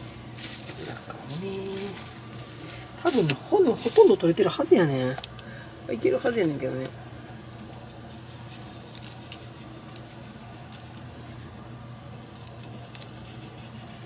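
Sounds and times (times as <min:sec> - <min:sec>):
salt grains crackling on plastic wrap: 0:00.0 - 0:04.9, 0:06.1 - 0:14.0
low steady hum: 0:00.0 - 0:14.0.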